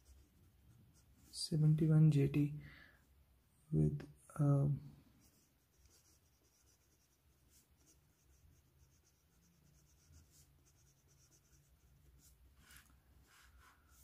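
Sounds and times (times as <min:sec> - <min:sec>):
pen nib scratching paper: 0:05.2 - 0:14.0.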